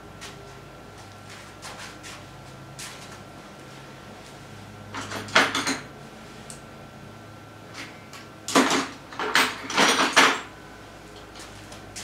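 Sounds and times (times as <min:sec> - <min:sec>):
objects clattering and rustling: 0:08.5 - 0:10.5.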